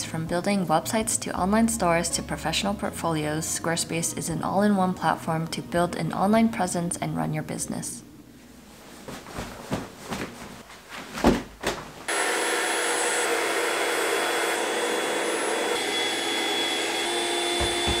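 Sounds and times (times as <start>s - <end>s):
vinyl mattress rustling: 8.4s - 12.1s, 17.6s - 18.0s
electric air pump whirring: 12.1s - 18.0s.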